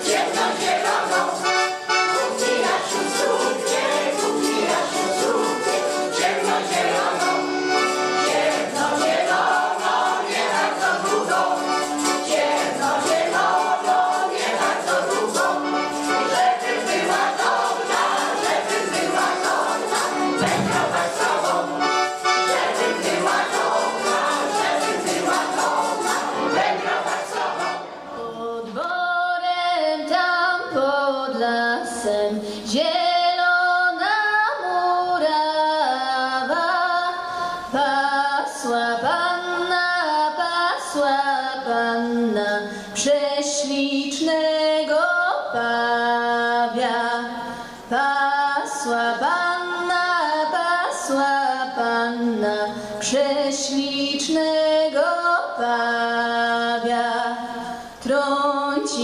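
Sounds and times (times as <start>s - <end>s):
woman singing unaccompanied: 28.1s - 59.0s.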